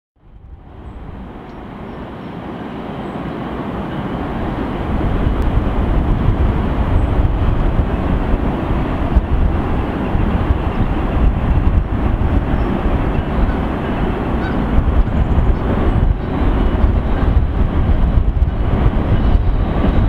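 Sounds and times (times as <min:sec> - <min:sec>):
train rumble: 0:00.2 - 0:20.0.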